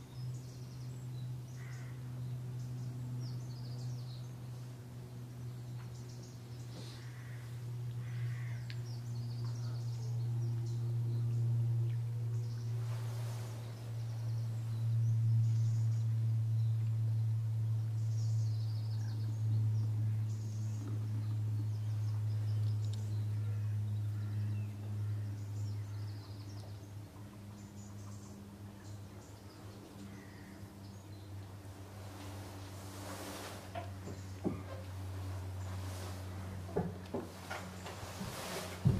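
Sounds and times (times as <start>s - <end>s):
steady low hum: 0.0s - 38.9s
brief rustle: 37.2s - 38.9s.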